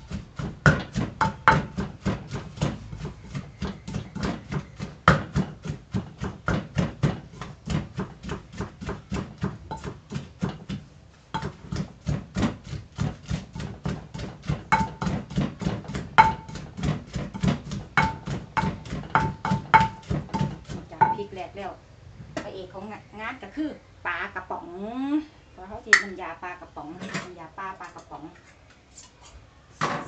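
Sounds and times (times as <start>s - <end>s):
wooden pestle pounding in mortar: 0.0s - 21.4s.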